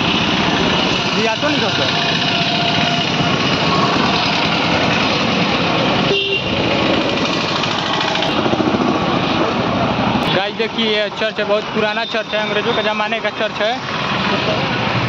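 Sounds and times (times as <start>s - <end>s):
engines passing close by: 0.0s - 15.0s
horn toot: 6.0s - 6.6s.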